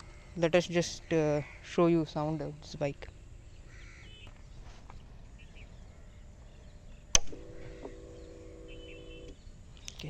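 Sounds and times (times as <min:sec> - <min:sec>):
faint bird chirps: 0:02.7 - 0:10.0
motorcycle low hum: 0:05.3 - 0:09.6
ignition key click: 0:07.1 - 0:08.0.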